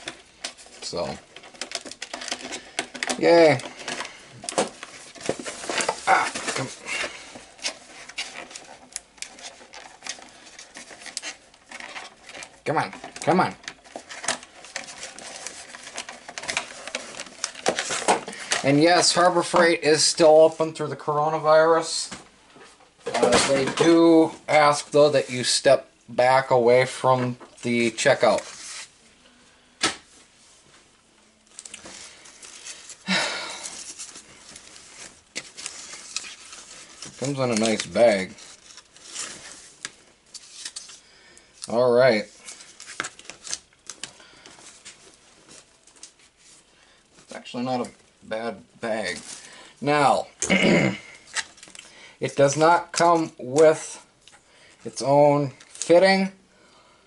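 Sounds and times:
cardboard and fabric rustling: 0.0 - 19.8, 30.1 - 41.0, 41.7 - 48.1.

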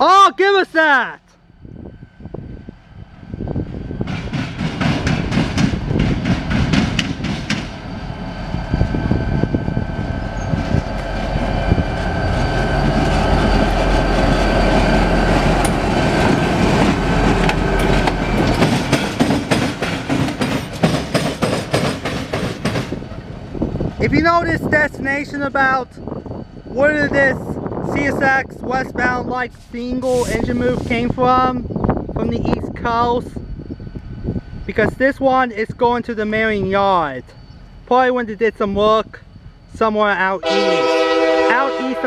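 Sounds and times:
locomotive engine drone: 1.4 - 42.0
wheels clicking over rail joints: 15.4 - 23.2.

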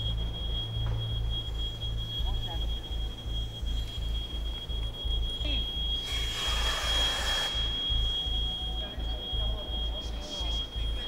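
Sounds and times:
high-pitched electronic alarm tone: 0.0 - 11.0
low pulsing throb: 0.0 - 11.0
burst of hiss: 6.0 - 7.6.

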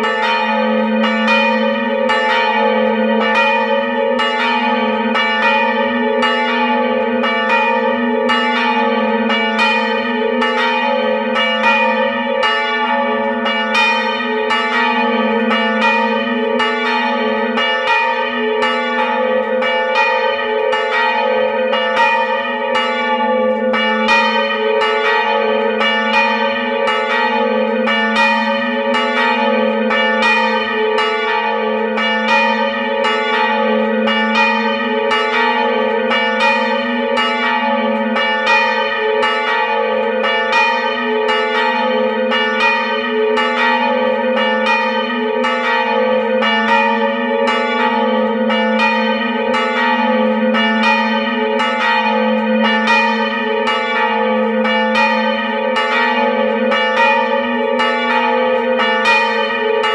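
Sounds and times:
church bells ringing: 0.0 - 59.9.

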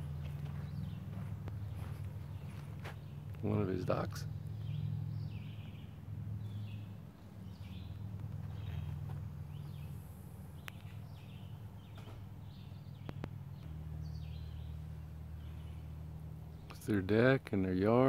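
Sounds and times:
bird chirping: 0.0 - 17.1
steady low hum: 0.0 - 18.0.

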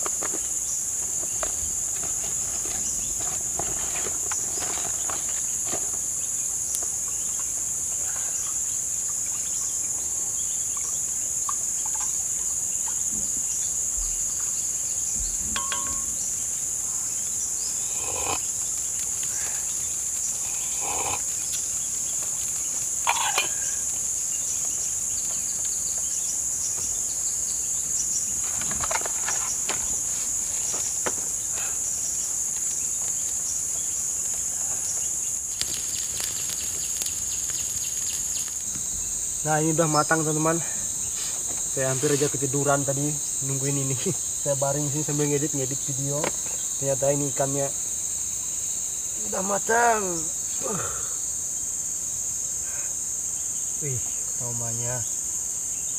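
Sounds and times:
knocks and scrapes: 0.0 - 6.1, 28.4 - 31.4
insects chorus: 0.0 - 55.9.

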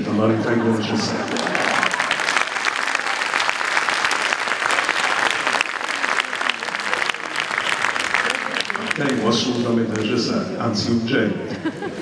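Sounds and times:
audience applauding: 1.1 - 10.2.

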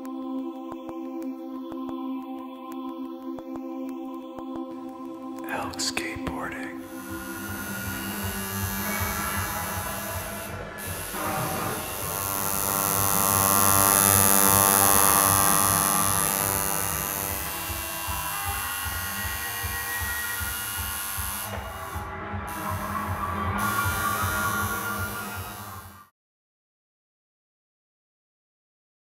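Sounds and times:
tattoo machine buzzing: 6.8 - 26.1.

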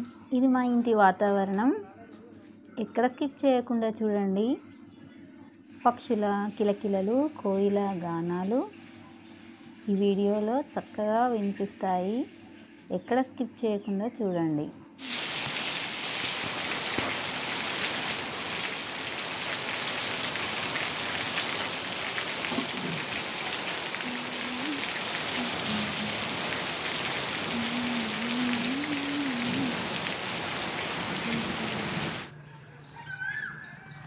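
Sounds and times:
heavy rain on leaves: 15.0 - 32.3
water streaming off roof: 15.0 - 32.3.

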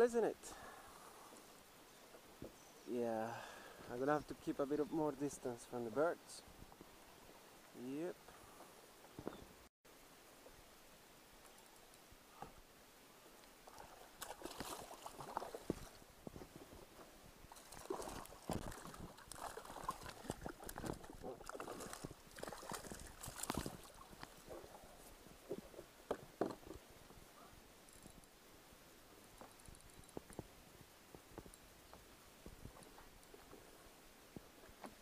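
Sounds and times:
water splashing beside kayak: 13.6 - 16.1, 17.5 - 26.6.

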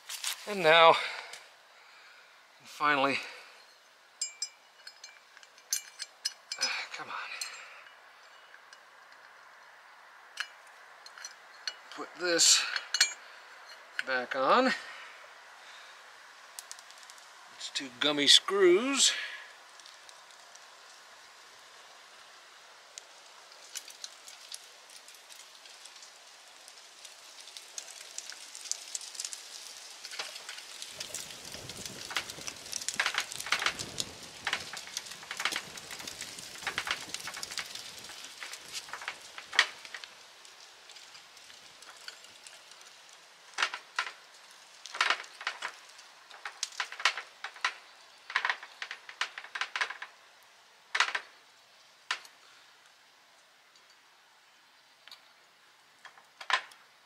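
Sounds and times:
scraping and handling noise: 0.0 - 0.6, 3.7 - 9.4, 23.6 - 50.2.

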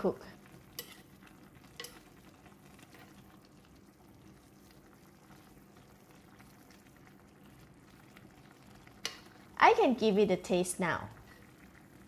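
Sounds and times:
gravy bubbling in clay pot: 0.0 - 9.7, 11.0 - 12.0.

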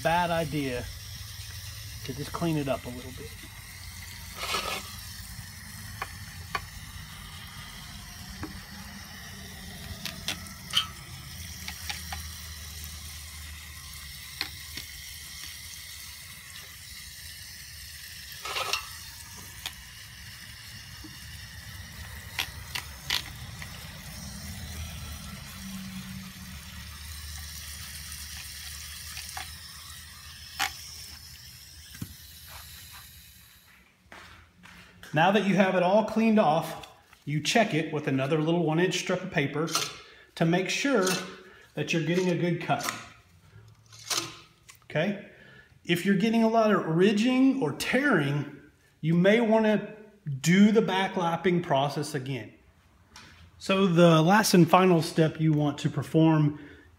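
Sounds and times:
brush scrubbing metal blades: 0.0 - 33.3
sharp clicks of bristles: 3.4 - 7.2, 9.8 - 13.0, 21.1 - 24.9.

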